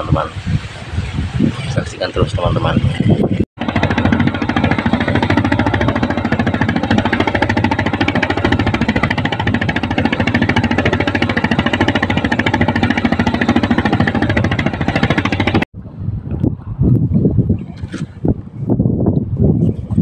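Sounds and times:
water splashing along hull: 0:00.0 - 0:16.6
boat engine chugging: 0:02.4 - 0:15.7.

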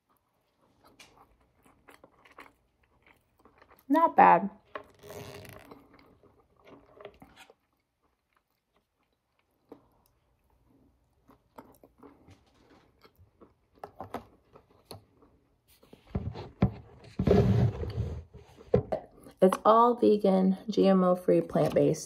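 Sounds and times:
person chewing food: 0:00.0 - 0:03.9, 0:04.6 - 0:16.2.

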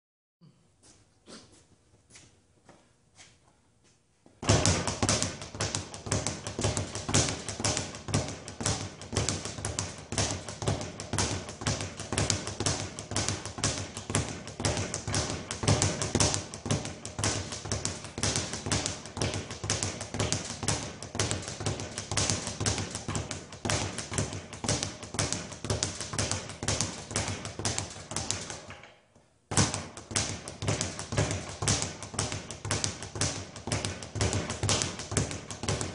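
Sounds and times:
speed bag rattling: 0:04.4 - 0:28.7.

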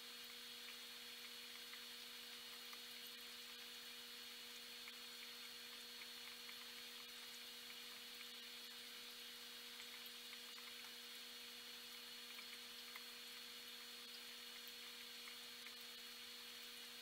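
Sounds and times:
aquarium equipment hum and hiss: 0:00.0 - 0:17.0.

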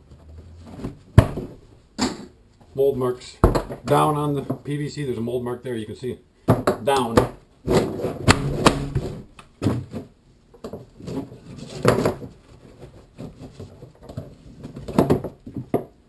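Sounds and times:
plastic pipes knocking and clattering: 0:03.4 - 0:04.7, 0:06.5 - 0:16.0.

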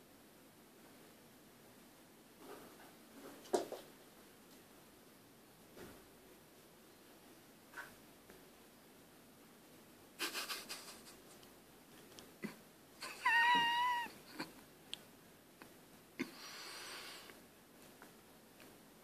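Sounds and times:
cat meowing: 0:13.0 - 0:14.2.

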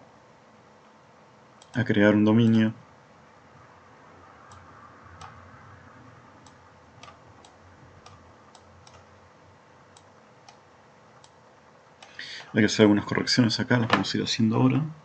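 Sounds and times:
low hiss of room noise: 0:00.0 - 0:15.0
faint computer mouse clicks: 0:04.5 - 0:05.4, 0:06.4 - 0:09.1.

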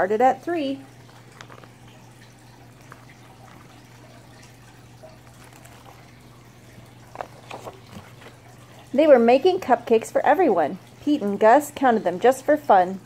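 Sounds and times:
book pages turning: 0:01.0 - 0:02.1, 0:02.7 - 0:04.5, 0:05.1 - 0:08.6.

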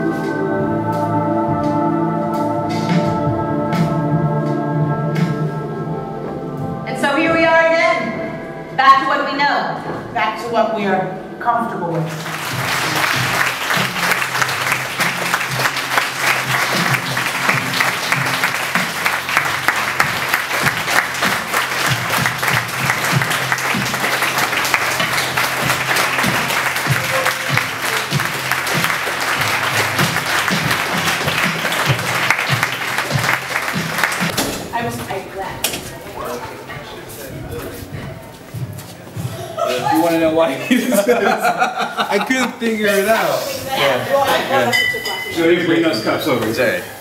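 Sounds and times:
music playing: 0:00.0 - 0:47.0
audience applauding: 0:12.1 - 0:34.4.

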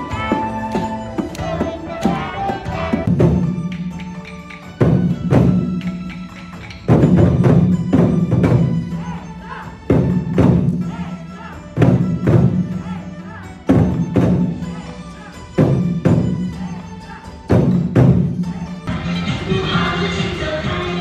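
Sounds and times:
barrel drums struck in unison: 0:00.1 - 0:09.2, 0:11.8 - 0:13.0, 0:15.6 - 0:16.7, 0:17.5 - 0:18.6.

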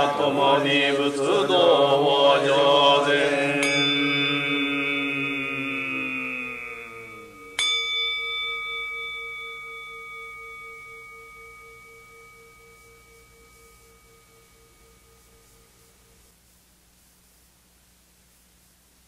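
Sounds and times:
person chanting: 0:00.0 - 0:07.8
altar bowl bell ringing: 0:03.4 - 0:16.3.

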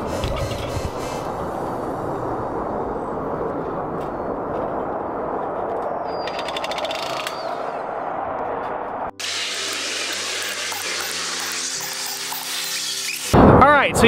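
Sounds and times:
power shears cutting metal: 0:09.2 - 0:13.4.

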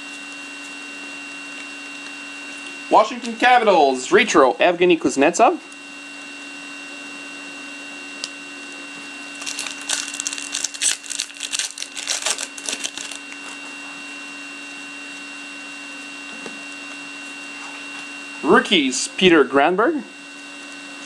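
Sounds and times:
electrical hum: 0:00.0 - 0:21.0
foil wrapper crinkling and tearing: 0:09.4 - 0:13.4.

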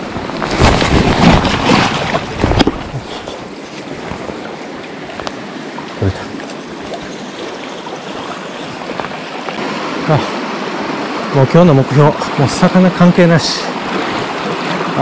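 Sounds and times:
wind and handling on microphone: 0:00.0 - 0:07.3, 0:08.1 - 0:09.8
mountain stream rushing: 0:00.0 - 0:15.0.

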